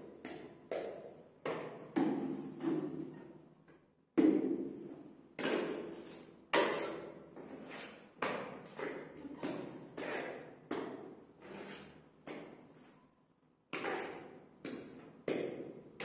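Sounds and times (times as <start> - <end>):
spatula scraping and tapping: 9.4 - 10.6.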